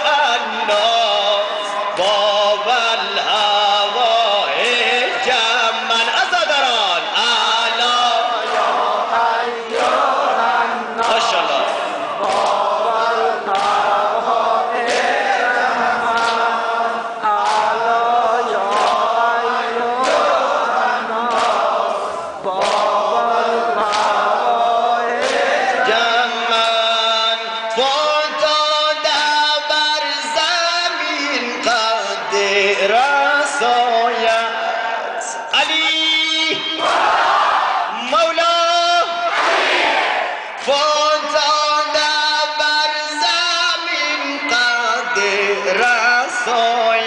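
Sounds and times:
man chanting melodically: 0.0 - 21.3, 22.4 - 36.9, 40.6 - 47.0
sharp rhythmic beat: 1.7 - 28.1.

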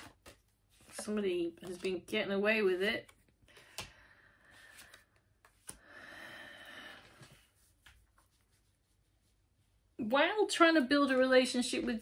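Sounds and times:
cards tapping and rustling: 0.0 - 2.2, 2.8 - 4.0, 4.6 - 5.8.

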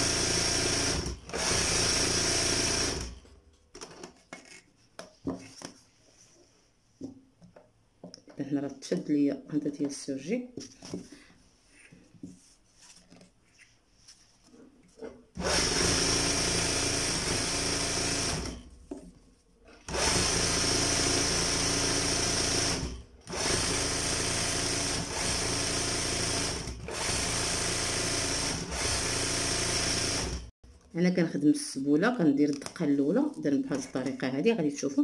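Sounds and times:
sewing machine stitching: 0.0 - 3.2, 15.4 - 18.7, 19.7 - 30.5.

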